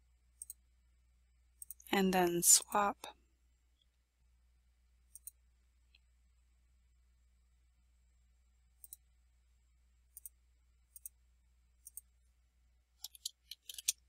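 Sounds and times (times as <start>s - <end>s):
computer mouse clicks: 0.4s - 0.6s, 1.6s - 1.9s, 5.1s - 5.4s, 8.8s - 9.0s, 10.1s - 11.2s, 11.8s - 12.1s, 13.0s - 14.0s.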